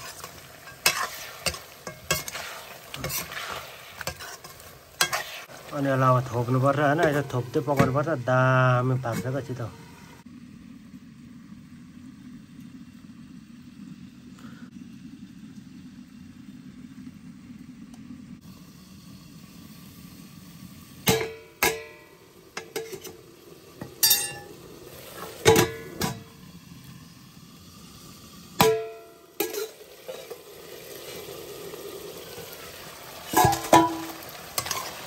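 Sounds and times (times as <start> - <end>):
metal lid and ladle clanking on wok: 0.0 - 2.4, 21.1 - 23.2, 23.8 - 24.6, 25.4 - 26.3, 28.6 - 30.4, 33.3 - 35.0
meat sizzling in a pan: 0.0 - 10.2, 18.4 - 35.0.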